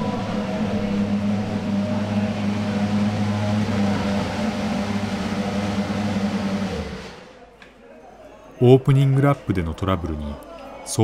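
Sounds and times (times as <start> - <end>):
racing car engine droning: 0.0 - 7.4.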